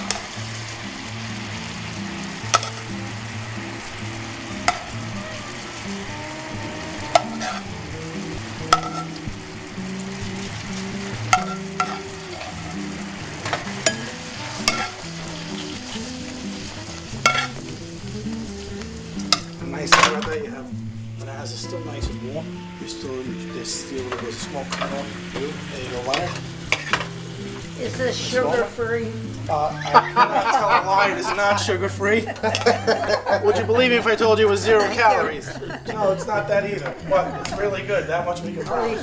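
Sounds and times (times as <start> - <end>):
steady hiss: 0.0 - 31.6
metal spoon clinking on pan and glass: 2.4 - 3.0, 7.1 - 7.7, 8.7 - 9.2, 11.3 - 12.7, 13.4 - 15.1, 17.2 - 17.6, 19.3 - 20.4, 26.1 - 27.2, 32.4 - 32.8.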